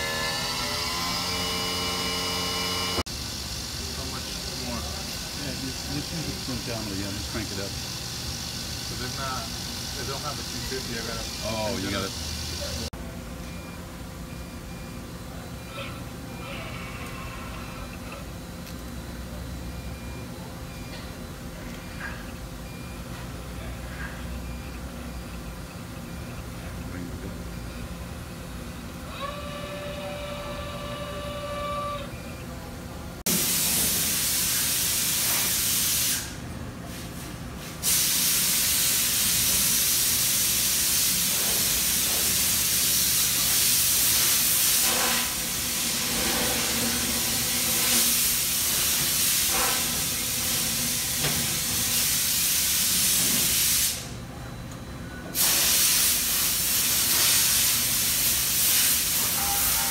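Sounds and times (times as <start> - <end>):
loud machine hiss: 0.0 - 12.9, 33.3 - 36.4, 37.8 - 54.2, 55.4 - 59.9
steady machine whine: 0.0 - 33.4.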